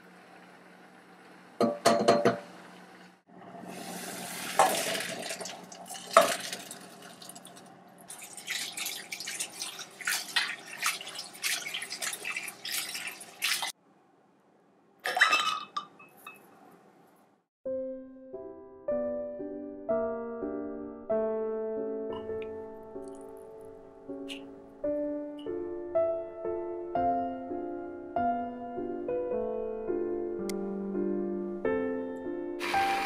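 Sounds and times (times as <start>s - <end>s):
chickpeas and water pouring: 3.6s - 13.8s
tap water splashing: 4.4s - 13.7s.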